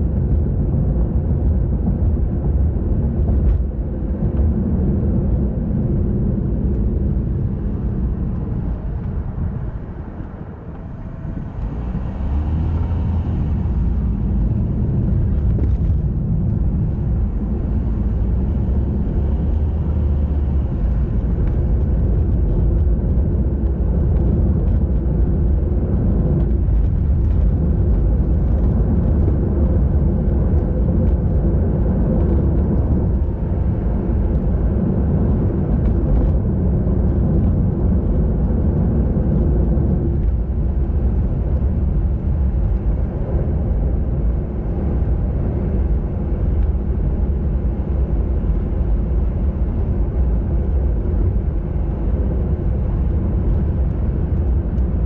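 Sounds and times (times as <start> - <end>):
wind and tyre rumble: 0.0 - 55.0.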